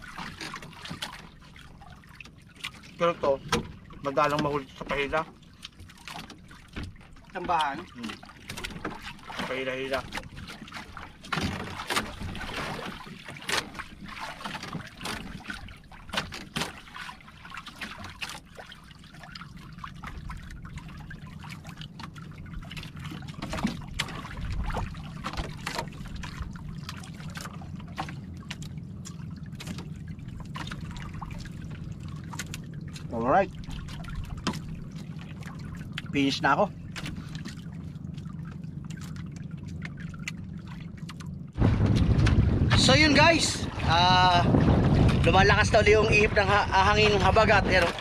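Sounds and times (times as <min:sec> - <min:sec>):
water lapping against boat hull: 0:00.0 - 0:48.0
steady low rumble: 0:19.1 - 0:48.0.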